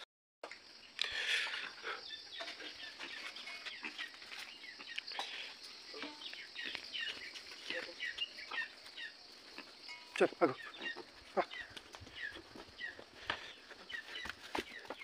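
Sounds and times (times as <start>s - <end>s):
birds chirping: 0.6s - 15.0s.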